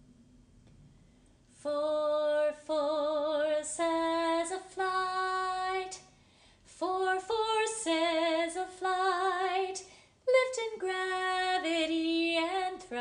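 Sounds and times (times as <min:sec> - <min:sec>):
woman singing wordless notes: 0:01.6 - 0:06.1, 0:06.7 - 0:13.0.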